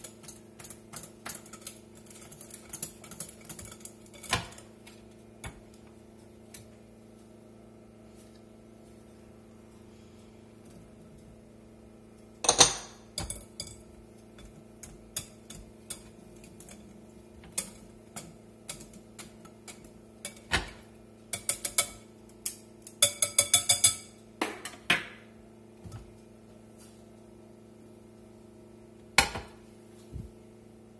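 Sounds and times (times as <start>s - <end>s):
metal whisk clinking against glass bowl: 0.0s - 4.6s, 23.0s - 24.1s.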